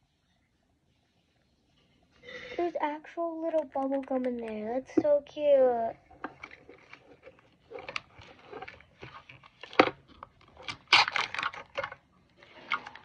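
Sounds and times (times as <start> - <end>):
paper wrapper crinkling and tearing: 6.0 - 13.0
sharp crack: 9.7 - 12.0.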